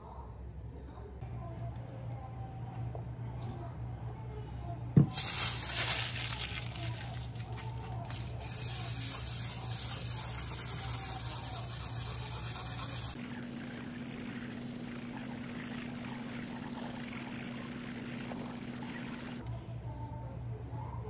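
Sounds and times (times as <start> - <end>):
low steady hum: 0.0 - 21.0
cloth scrubbing glass: 8.3 - 19.4.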